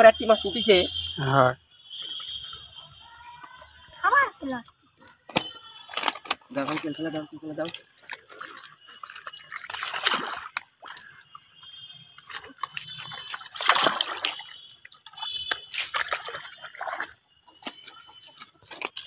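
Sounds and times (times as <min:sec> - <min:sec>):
fish thrashing and splashing in net: 0:05.0 - 0:19.0.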